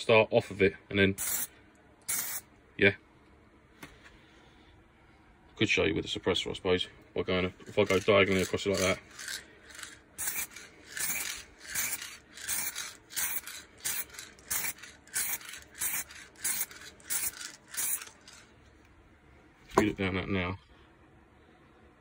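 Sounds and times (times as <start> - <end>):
spray can hissing: 1.2 - 1.5, 2.1 - 2.4, 7.8 - 18.4.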